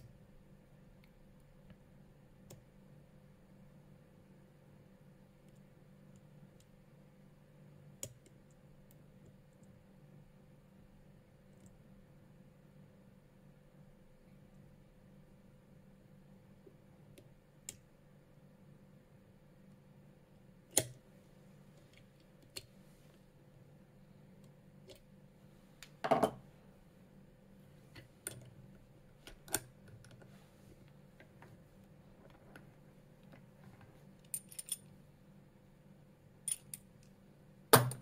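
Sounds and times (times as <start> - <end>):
padlock and pick clicking: 20.7 - 21.0, 36.5 - 36.9.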